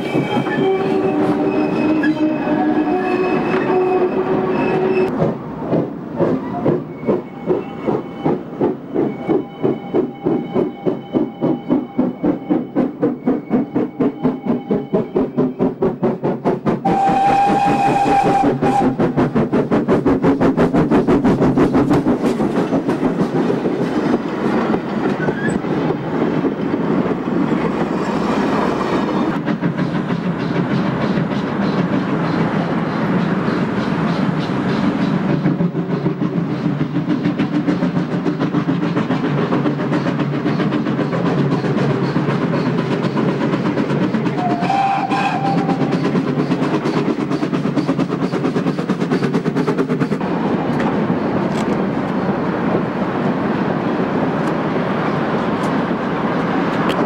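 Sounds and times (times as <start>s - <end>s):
steam locomotive exhaust beats: 0.0s - 57.0s
steam whistle blast: 0.4s - 5.1s, 16.9s - 19.0s, 44.4s - 45.9s.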